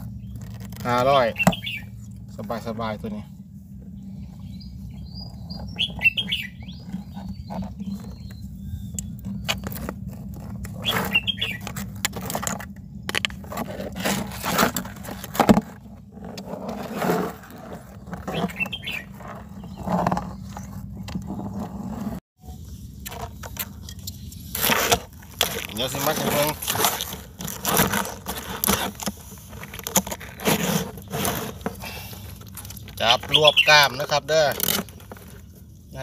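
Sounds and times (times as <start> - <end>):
crab claws scraping plastic basin: 0.0 - 1.8, 5.1 - 8.5, 9.3 - 22.2, 23.1 - 36.0
birds chirping: 0.0 - 12.0, 17.7 - 21.8, 25.5 - 26.9, 28.4 - 36.0
steady low hum: 0.0 - 33.3.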